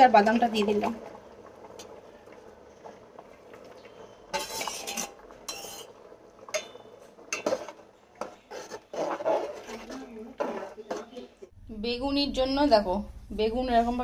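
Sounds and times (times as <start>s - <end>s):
metal skimmer scraping a pot: 2.8s - 11.3s.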